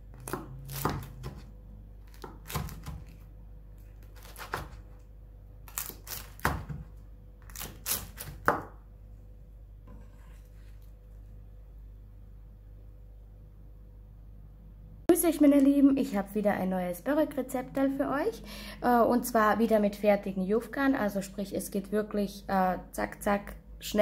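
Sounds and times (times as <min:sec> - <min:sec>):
knife cutting crunchy pastry: 0:00.1 - 0:08.7.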